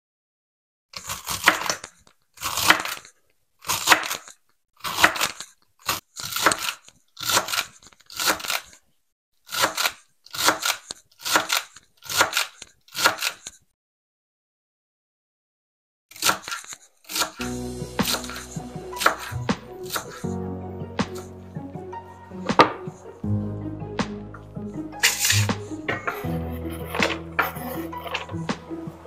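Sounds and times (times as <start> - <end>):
crunching scraping of vegetables: 1.0 - 8.8, 25.0 - 28.8.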